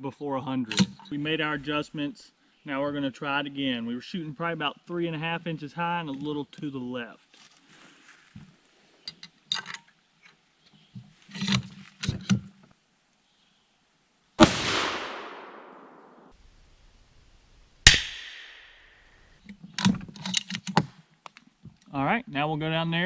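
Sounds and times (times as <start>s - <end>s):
rifle shots echoing: 14.4s - 16.4s, 17.9s - 19.1s.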